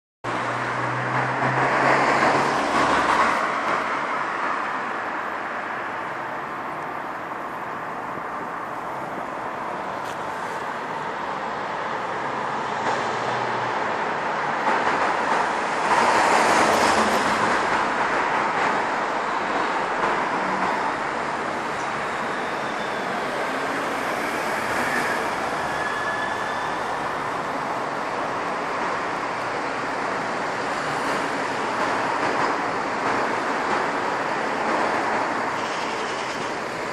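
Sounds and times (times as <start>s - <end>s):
vehicles passing: 0.2s - 36.9s
faint thin squeal: 22.0s - 27.1s.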